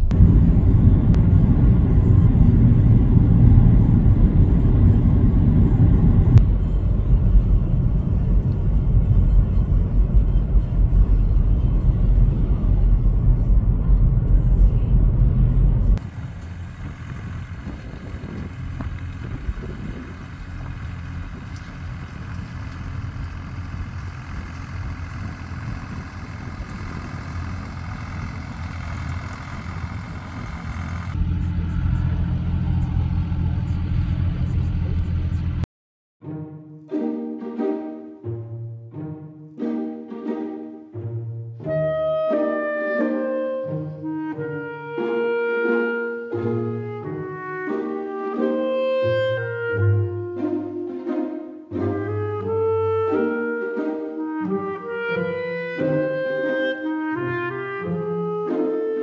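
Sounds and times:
car road and wind noise: 0.0s - 35.7s.

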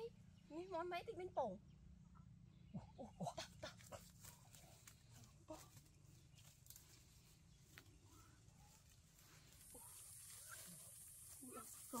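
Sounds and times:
footsteps in dry leaves: 3.9s - 12.0s
rustling in dry leaves: 3.9s - 12.0s.

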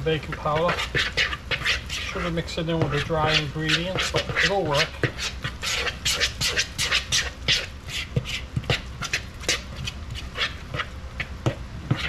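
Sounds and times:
wet batter squelching: 0.0s - 12.0s.

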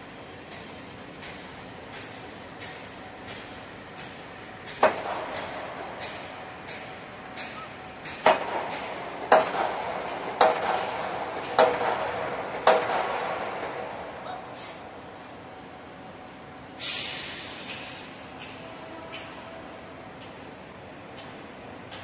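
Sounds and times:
hammer striking steel: 1.3s - 14.0s.

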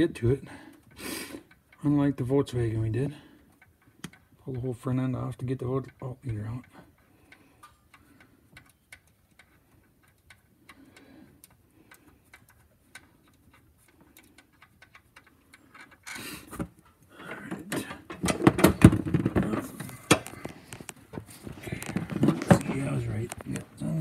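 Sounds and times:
hand ratchet clicking: 5.8s - 17.2s.

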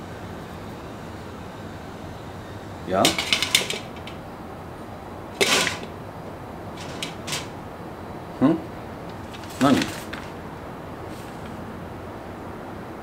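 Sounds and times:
metal grill parts clattering: 3.0s - 4.2s, 5.4s - 6.0s, 6.8s - 7.6s, 9.3s - 10.4s.

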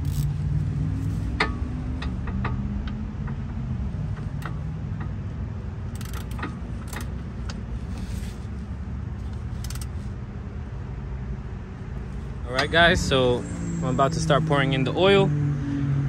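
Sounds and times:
ratchet clicks: 0.0s - 5.2s, 5.8s - 8.2s, 9.3s - 10.0s
steady low rumble: 0.0s - 15.2s.

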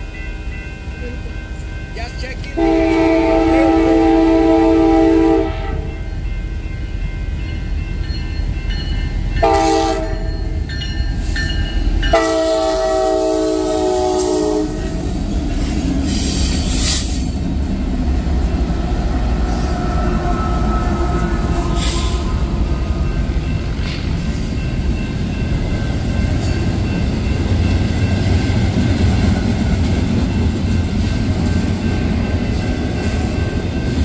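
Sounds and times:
locomotive air horn blasts: 2.6s - 6.0s, 9.4s - 10.3s, 12.1s - 14.9s.

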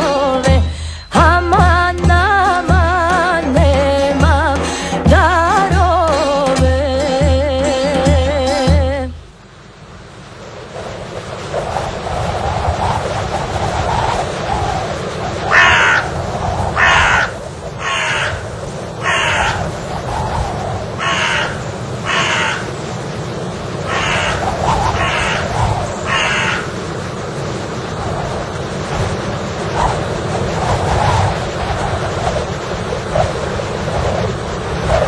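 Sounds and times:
low rushing noise: 0.0s - 35.0s
crows cawing: 15.5s - 16.2s, 16.8s - 19.7s, 21.0s - 22.9s, 23.8s - 26.8s.

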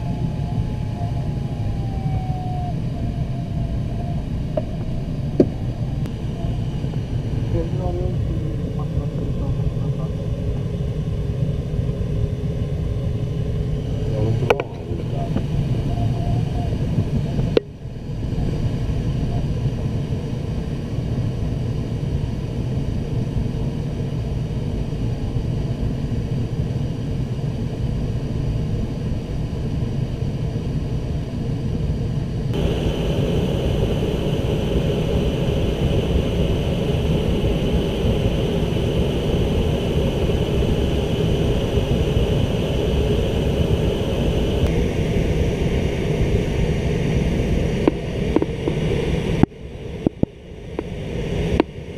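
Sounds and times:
airflow rushing around canopy: 32.4s - 51.9s.

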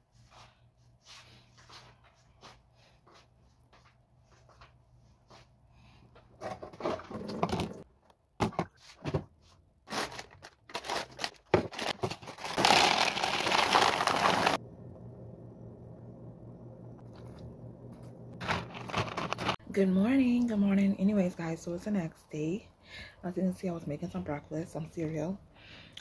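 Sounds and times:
plastic bag crinkling: 9.9s - 14.6s, 18.4s - 19.6s
cereal pouring into plastic bowl: 12.4s - 14.6s.

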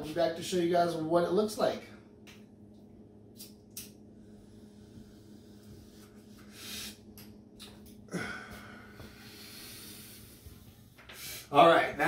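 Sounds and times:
steady low hum: 0.0s - 12.0s
breathy inhale: 4.2s - 7.1s, 8.1s - 11.5s.

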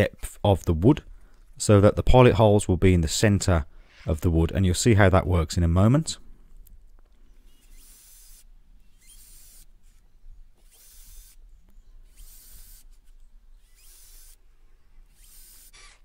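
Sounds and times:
cordless drill drilling wood: 7.4s - 10.0s, 10.6s - 11.4s, 12.0s - 14.4s, 15.0s - 16.0s.

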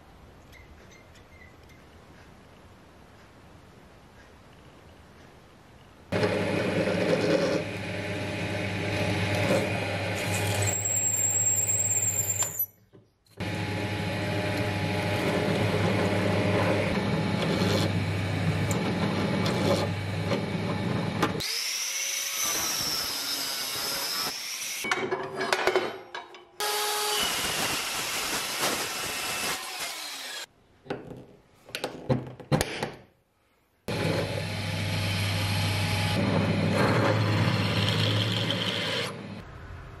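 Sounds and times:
drill bit scraping steel: 6.2s - 7.9s, 8.9s - 12.7s
drill bit squealing on steel: 10.2s - 12.8s
drill press motor hum: 13.4s - 21.5s, 33.9s - 39.4s.

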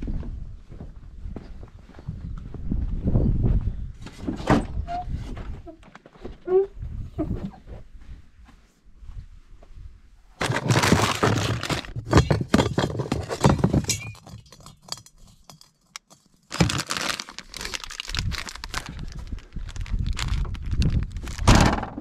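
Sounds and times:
plastic wrapper crinkling: 10.4s - 12.0s, 16.4s - 21.5s.

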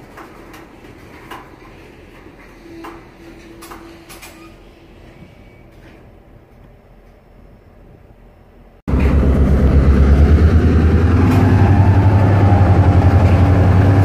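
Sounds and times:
steel train wheels rumbling on rail: 0.0s - 14.0s.

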